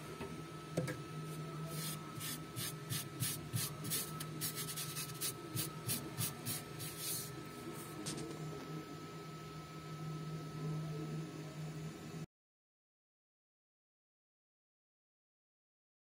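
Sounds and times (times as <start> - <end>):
faint hum: 0.0 - 12.3.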